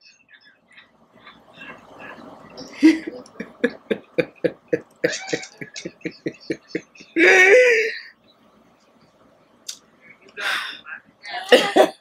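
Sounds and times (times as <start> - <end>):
woman laughing: 1.3 - 8.0, 11.3 - 12.0.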